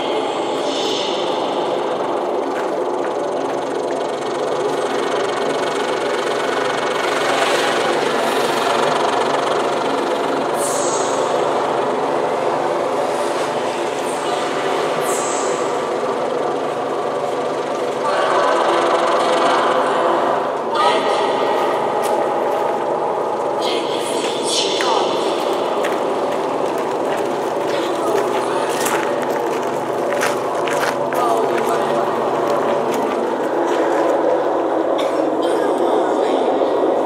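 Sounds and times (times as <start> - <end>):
electric cello drone: 0.0 - 23.7.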